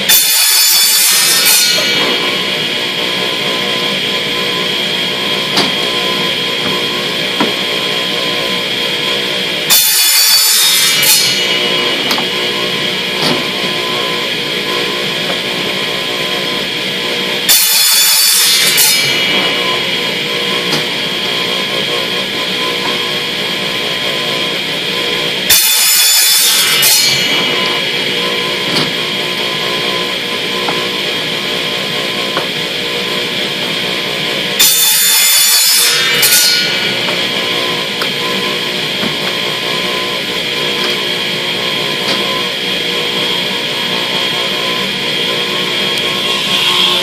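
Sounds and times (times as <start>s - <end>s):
miter saw cutting plastic pipe: 0.0s - 47.0s.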